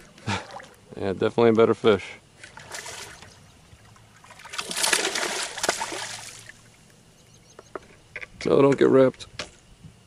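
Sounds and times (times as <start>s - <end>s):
fish splashing in water: 2.5s - 6.9s.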